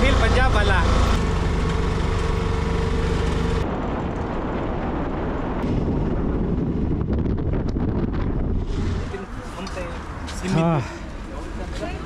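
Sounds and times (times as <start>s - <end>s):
auto-rickshaw engine running: 0.0s - 4.4s
wind buffeting microphone: 3.3s - 10.4s.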